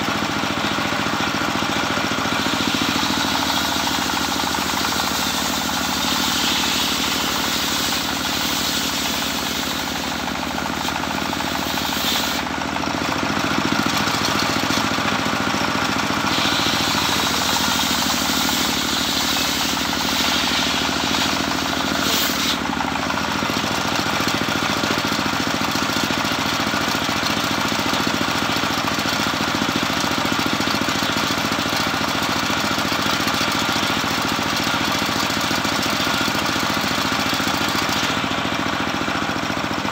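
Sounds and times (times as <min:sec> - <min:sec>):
circular saw cutting whine: 0:00.0 - 0:28.3
saw drive running: 0:00.0 - 0:39.9.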